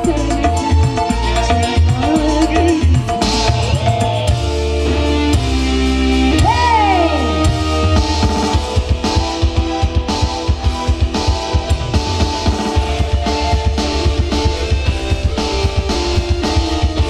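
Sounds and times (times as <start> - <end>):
steady drum beat: 0.0 - 4.7, 6.4 - 17.0
keyboard chords: 0.0 - 17.0
sliding lead note: 12.1 - 17.0.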